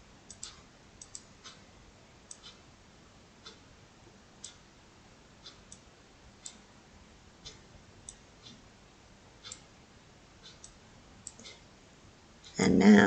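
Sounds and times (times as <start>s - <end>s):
computer mouse clicks: 0.3s - 1.6s, 10.4s - 11.6s.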